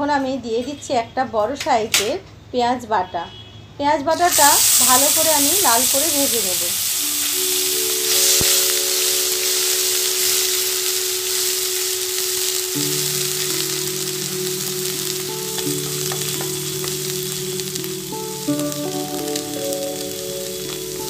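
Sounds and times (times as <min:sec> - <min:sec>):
onion paste sizzling in oil: 0:04.1 - 0:21.0.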